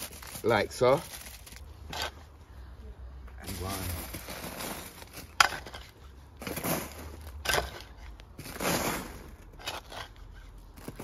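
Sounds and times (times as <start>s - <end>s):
spade scooping soil: 1.8s - 2.2s, 3.5s - 11.0s.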